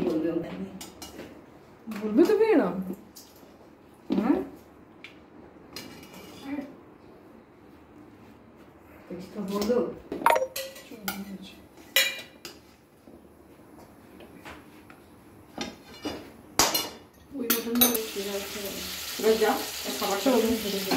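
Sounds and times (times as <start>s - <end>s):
metal dishes clinking: 10.3s - 10.9s.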